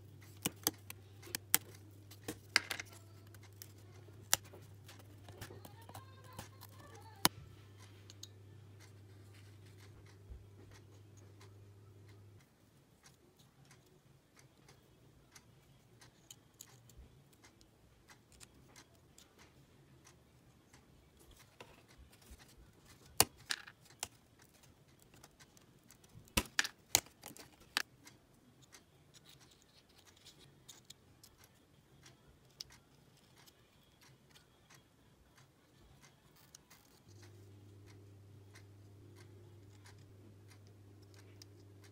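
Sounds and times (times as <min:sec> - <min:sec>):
wooden puzzle pieces clicking: 0:00.2 - 0:07.3, 0:14.7 - 0:20.2, 0:21.2 - 0:34.8.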